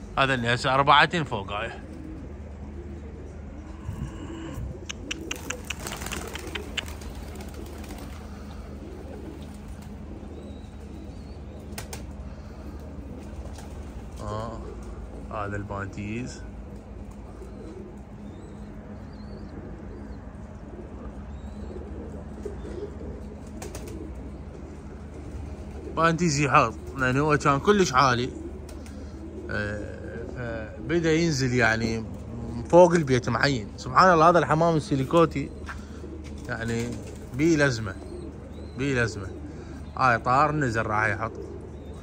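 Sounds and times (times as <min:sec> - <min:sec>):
low background hum: 0:00.0 - 0:42.0
pigeons cooing: 0:00.0 - 0:42.0
sharp clicks: 0:04.8 - 0:07.0.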